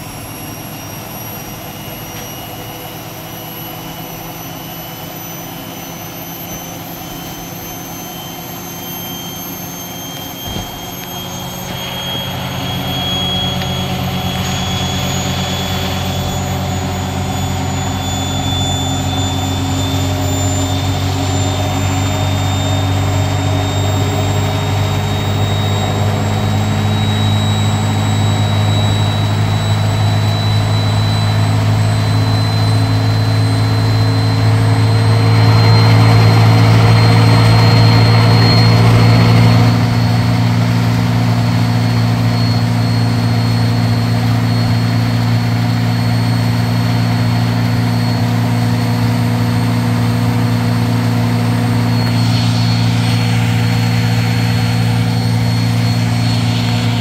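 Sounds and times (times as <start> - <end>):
washing machine spinning: 0.0 - 57.0
rushing noise: 49.4 - 57.0.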